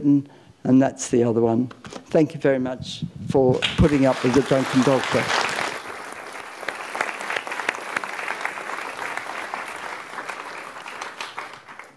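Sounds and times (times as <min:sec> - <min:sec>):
audience applauding: 0:03.6 - 0:11.9.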